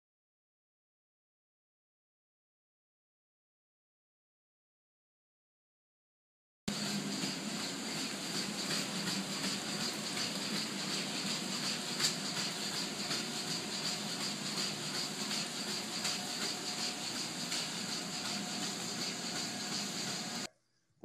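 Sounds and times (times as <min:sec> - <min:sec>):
machinery and ventilation hum: 0:06.7 - 0:20.5.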